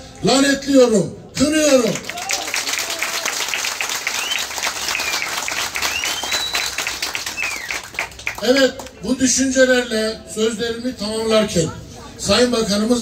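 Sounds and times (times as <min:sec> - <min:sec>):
crowd applauding: 0:01.8 - 0:09.0.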